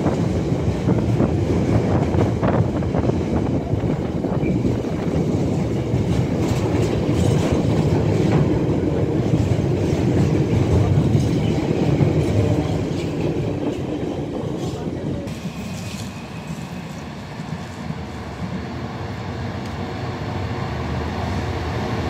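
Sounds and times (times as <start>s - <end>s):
freight train rumbling past: 0.0s - 22.0s
wheels clattering over rail joints: 4.3s - 16.0s.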